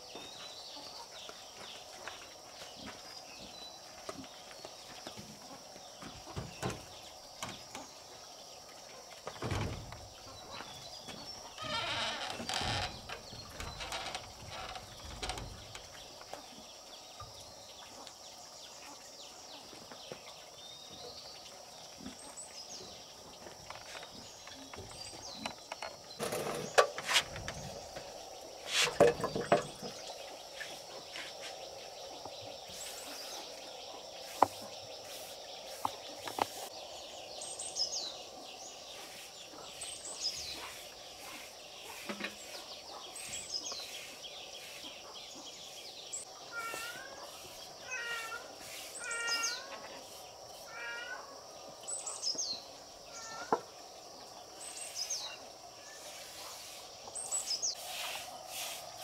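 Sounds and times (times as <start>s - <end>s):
steady background hiss: 12.8s - 59.0s
high downward-sweeping bird call: 47.8s - 49.8s.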